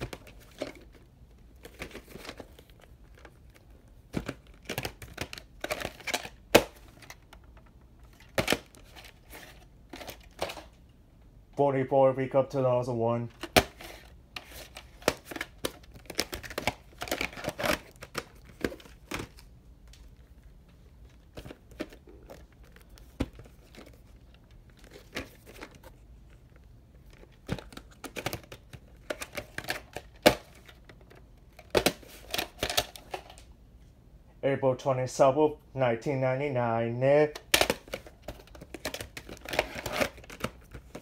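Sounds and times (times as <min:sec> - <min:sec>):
plastic cases clicking and tapping: 0:01.6 - 0:09.1, 0:27.1 - 0:33.4, 0:37.4 - 0:41.0.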